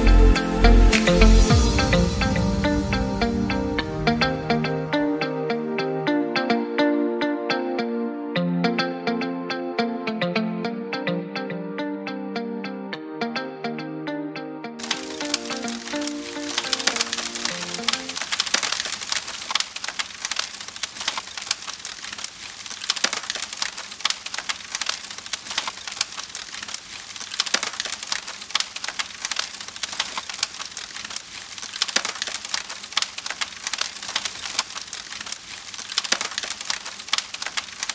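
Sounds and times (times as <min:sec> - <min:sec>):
fire crackling: 0:14.8 - 0:37.9.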